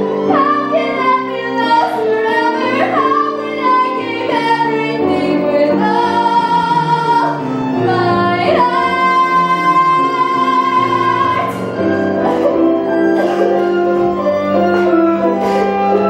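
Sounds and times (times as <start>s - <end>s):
instrumental accompaniment: 0.0s - 16.0s
woman singing: 0.2s - 11.6s.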